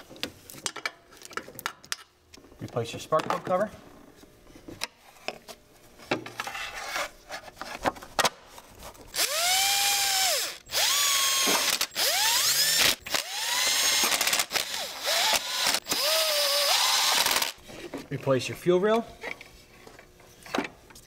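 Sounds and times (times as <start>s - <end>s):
cordless driver motor whine: 9.2s - 17.6s.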